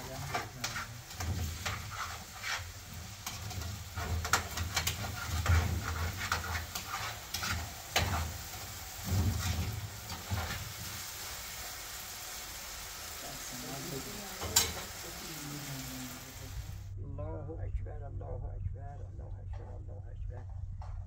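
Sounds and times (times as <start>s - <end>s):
utensil scraping a pan: 0.0s - 11.3s
food sizzling in frying pan: 0.0s - 16.9s.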